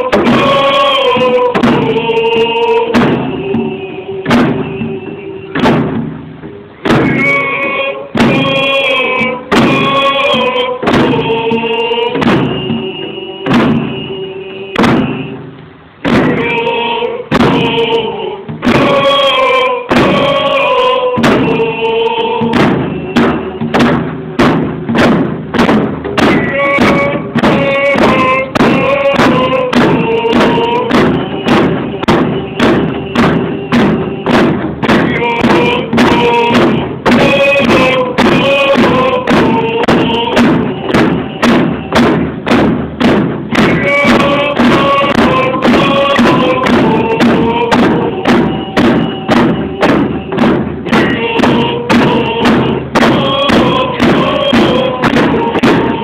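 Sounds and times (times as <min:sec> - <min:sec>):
group singing in unison: 0:00.0 - 0:06.1, 0:06.8 - 0:56.0
hand drums beating: 0:00.0 - 0:56.0.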